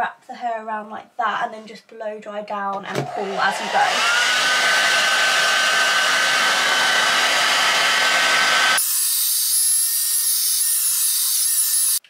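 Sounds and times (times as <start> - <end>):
hair dryer blowing: 2.9 - 10.2.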